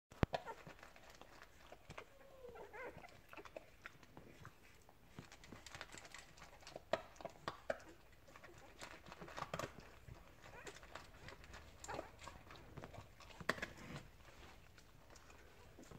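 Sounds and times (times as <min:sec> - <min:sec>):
dog crunching dry kibble: 0:00.2 - 0:15.9
puppy squeaking: 0:01.6 - 0:03.7.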